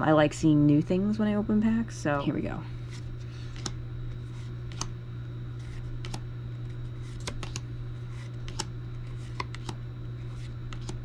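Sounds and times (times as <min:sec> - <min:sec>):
steady low hum: 0:00.0 - 0:11.0
trading cards clicking and snapping: 0:02.9 - 0:05.0, 0:05.6 - 0:06.2, 0:07.0 - 0:11.0.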